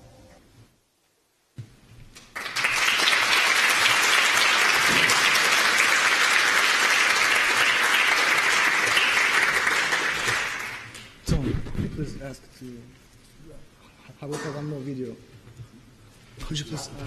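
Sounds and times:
audience applauding: 2.2 - 11.1.

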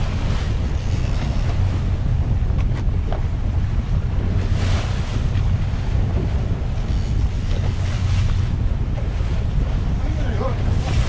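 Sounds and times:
steady low rumble: 0.0 - 11.0
water splashing along boat hull: 0.0 - 11.0
wind buffeting microphone: 0.0 - 11.0.

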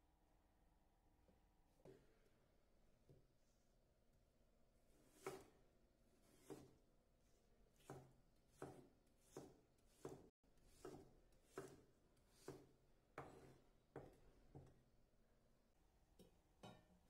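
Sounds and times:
knife chopping on wooden board: 5.1 - 5.6, 6.3 - 6.7, 7.8 - 14.7.

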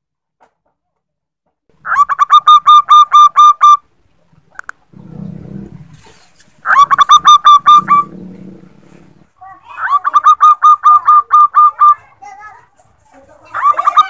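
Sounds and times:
dove cooing: 4.9 - 12.2, 13.4 - 14.0.

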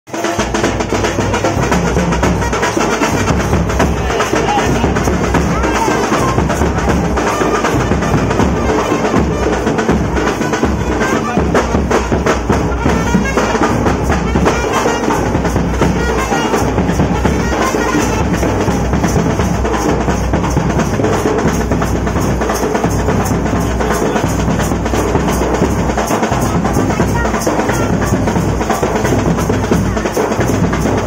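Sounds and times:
drums playing fast beat: 0.1 - 31.0.

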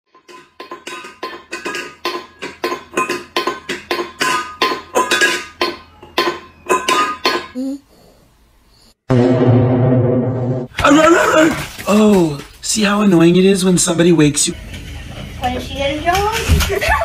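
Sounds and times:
metal bowl clanking on tile floor: 0.1 - 7.6.

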